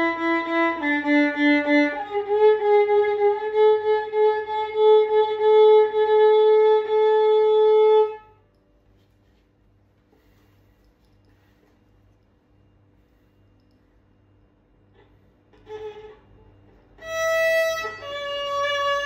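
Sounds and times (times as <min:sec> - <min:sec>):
violin notes bowed: 0:00.0 - 0:08.4, 0:15.5 - 0:19.0.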